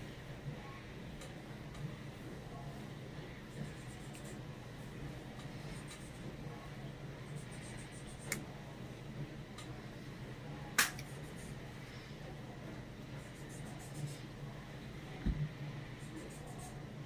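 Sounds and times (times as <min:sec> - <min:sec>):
small sharp click: 0:10.8 - 0:11.0.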